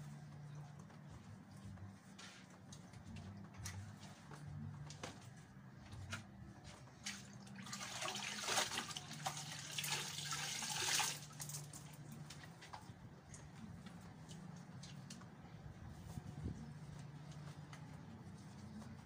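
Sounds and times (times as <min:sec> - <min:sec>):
water splashing into a basin: 0:07.1 - 0:11.8.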